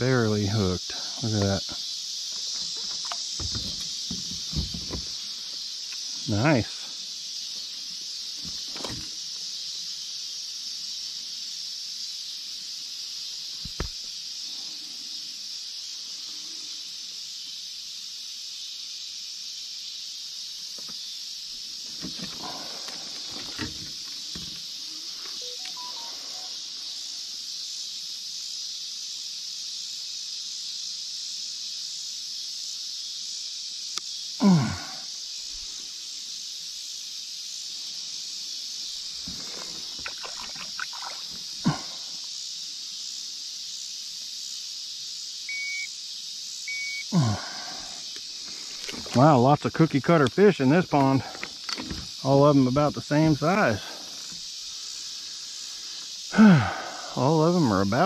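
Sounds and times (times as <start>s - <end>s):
night insects chorus: 0.0s - 58.0s
faint knocks and handling sounds: 2.4s - 5.2s.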